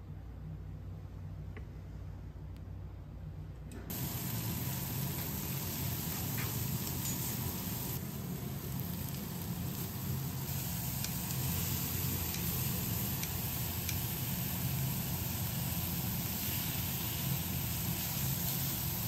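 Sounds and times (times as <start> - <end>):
meat sizzling on a griddle: 3.9 - 19.0.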